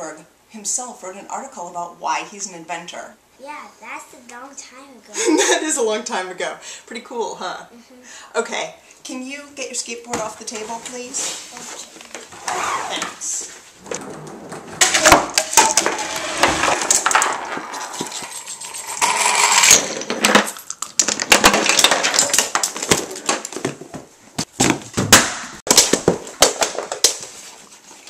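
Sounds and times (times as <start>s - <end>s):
book falling off shelf: 13.8s - 18.2s, 19.7s - 27.5s
skateboard rolling on table: 13.8s - 20.5s
toy blocks toppling: 14.8s - 23.9s, 24.6s - 27.3s
toy cars running down plastic track: 15.4s - 23.1s.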